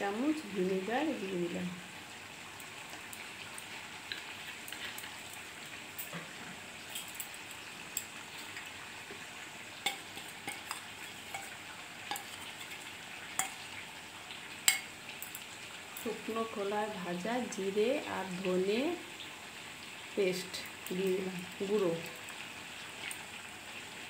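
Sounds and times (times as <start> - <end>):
curry sizzling in oil: 0.0 - 24.0.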